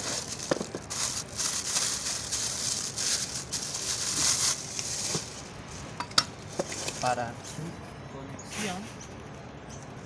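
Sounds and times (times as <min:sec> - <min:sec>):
plastic wrapping crinkling: 0:00.0 - 0:07.2.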